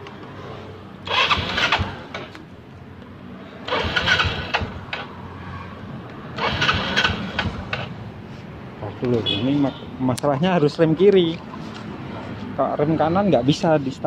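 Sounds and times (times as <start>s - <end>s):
scooter engine cranking: 1.0s - 2.4s, 3.6s - 5.1s, 6.4s - 8.0s.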